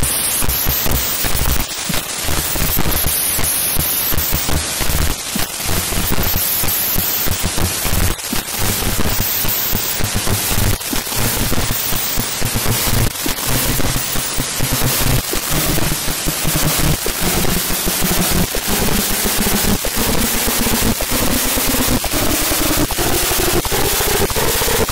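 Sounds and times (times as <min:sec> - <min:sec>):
crackling static: 0:00.0 - 0:24.9.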